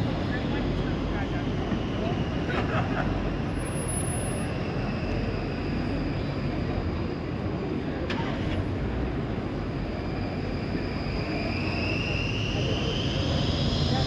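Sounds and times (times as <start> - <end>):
electric tram approaching on rails: 0.0 - 14.0
faint high whine: 9.2 - 14.0.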